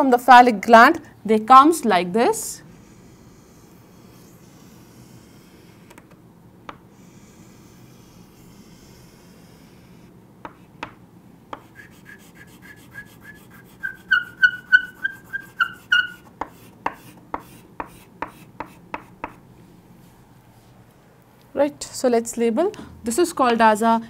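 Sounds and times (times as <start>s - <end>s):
chalk scraping on chalkboard: 2.8s - 6.0s, 7.0s - 10.7s, 11.6s - 19.4s
chalk squeaking on chalkboard: 2.8s - 6.0s, 7.0s - 10.1s, 11.6s - 19.4s.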